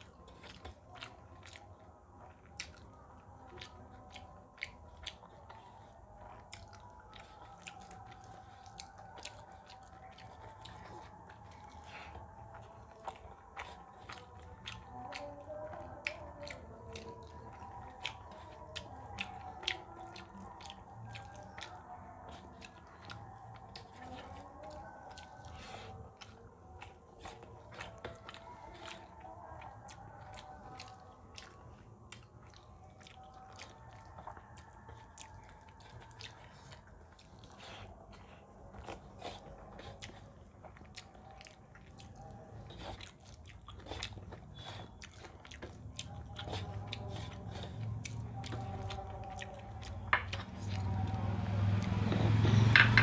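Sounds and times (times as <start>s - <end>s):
wet chewing and mouth smacks: 0.0s - 53.0s.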